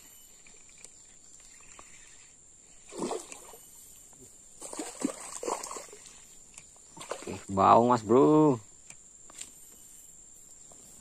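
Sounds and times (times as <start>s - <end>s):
high buzz of insects: 0.0s - 11.0s
fish splashing at the surface: 2.9s - 3.6s, 4.6s - 6.1s.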